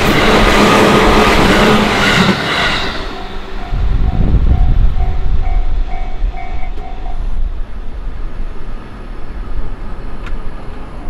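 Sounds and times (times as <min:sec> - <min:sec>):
crossing warning bell ringing: 0:00.0 - 0:07.6
train rumbling past: 0:00.0 - 0:11.0.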